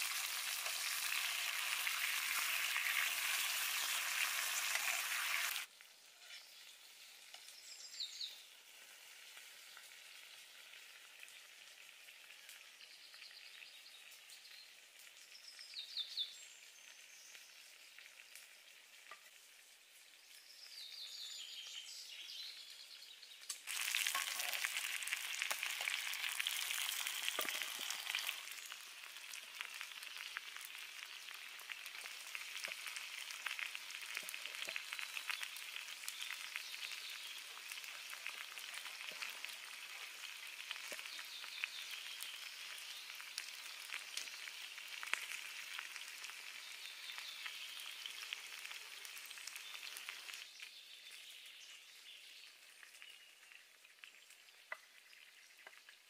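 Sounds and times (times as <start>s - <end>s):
chicken sizzling in oil: 0.0s - 56.0s
crackles and pops: 23.3s - 56.0s.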